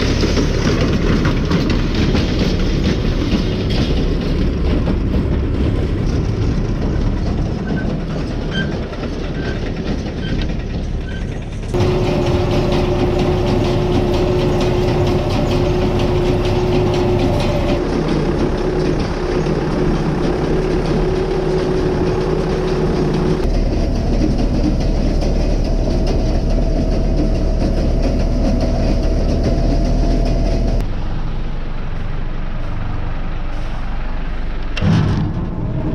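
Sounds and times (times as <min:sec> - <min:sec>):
harvest machinery rattling: 0:00.0 - 0:30.9
engine droning hum: 0:00.0 - 0:35.9.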